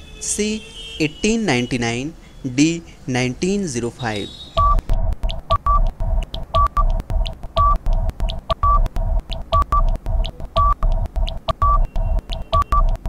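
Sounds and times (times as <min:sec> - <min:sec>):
fast short beeps: 0:04.2 - 0:04.9, 0:05.5 - 0:05.9, 0:06.6 - 0:07.0, 0:07.6 - 0:07.8, 0:08.5 - 0:13.0
higher beep: 0:04.2 - 0:04.9, 0:05.5 - 0:05.9, 0:06.6 - 0:07.0, 0:07.6 - 0:07.8, 0:08.5 - 0:08.9, 0:09.5 - 0:10.0, 0:10.6 - 0:13.0
low bass thump: 0:04.6 - 0:12.3.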